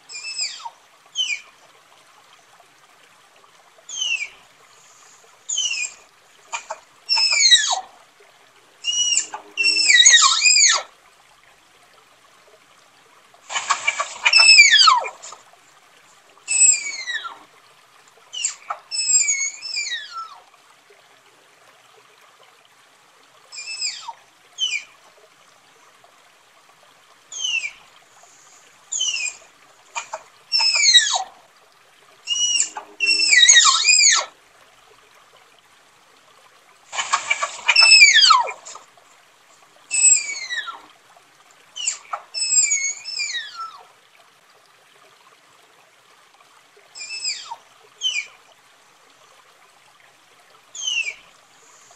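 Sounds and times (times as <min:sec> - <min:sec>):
tapir whistling squeals: 0:00.1 - 0:01.4, 0:03.9 - 0:04.3, 0:05.5 - 0:06.0, 0:06.6 - 0:07.8, 0:08.8 - 0:10.9, 0:13.6 - 0:15.4, 0:16.5 - 0:17.4, 0:18.4 - 0:20.3, 0:27.4 - 0:27.8, 0:28.9 - 0:29.4, 0:30.0 - 0:31.2, 0:32.3 - 0:34.3, 0:37.0 - 0:38.8, 0:39.9 - 0:40.8, 0:41.8 - 0:43.8, 0:47.0 - 0:48.3, 0:50.8 - 0:51.2.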